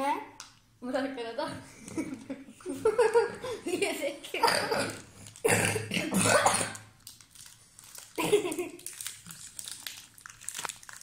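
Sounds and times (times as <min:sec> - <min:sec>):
child's voice: 0:00.0 - 0:01.6
plastic wrapper crinkling: 0:04.9 - 0:05.5, 0:06.8 - 0:11.0
child laughing: 0:08.2 - 0:08.9.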